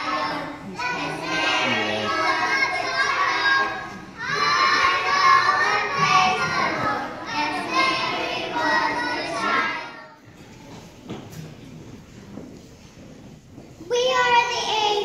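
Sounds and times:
young children singing: 0.0s - 10.2s.

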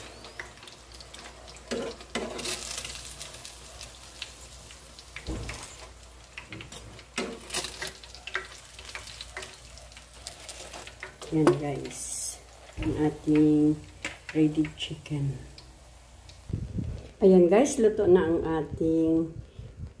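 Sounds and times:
chicken sizzling in oil: 0.0s - 16.6s
tongs clicking: 6.4s - 9.6s.

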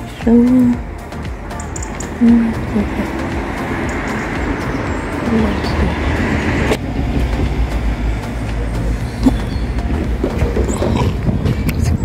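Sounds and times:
traffic rumble: 0.0s - 12.0s.

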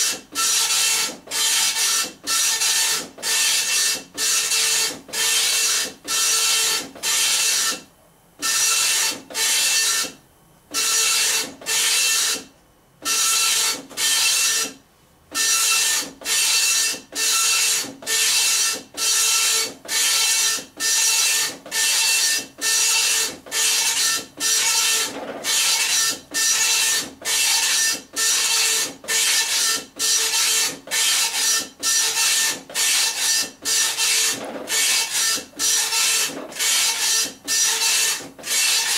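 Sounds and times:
dot matrix printer rasping: 15.4s - 38.9s.

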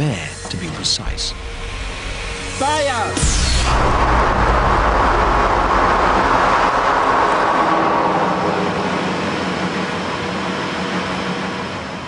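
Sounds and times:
low rumble: 0.5s - 11.0s
wind tunnel air rushing: 3.2s - 12.0s.

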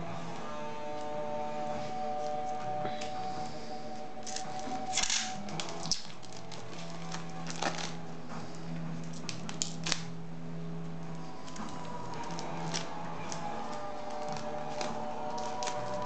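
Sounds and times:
quiet background music: 0.0s - 16.0s
plastic wrap crinkling: 4.2s - 10.2s, 11.1s - 16.0s.

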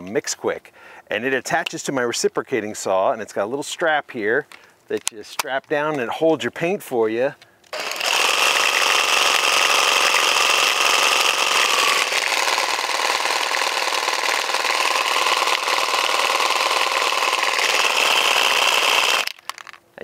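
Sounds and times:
reciprocating saw running: 7.7s - 19.8s
spray can shaking: 19.2s - 19.8s.

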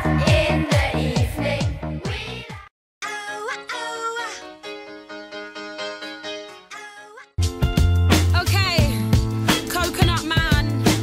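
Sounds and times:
fast electronic music: 8.3s - 11.0s.

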